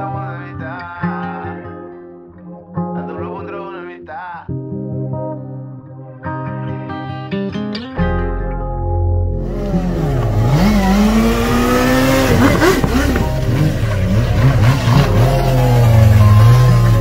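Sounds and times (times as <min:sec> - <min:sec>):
car engine revving: 0:09.4 - 0:17.0
motorcycle engine revving: 0:09.4 - 0:17.0.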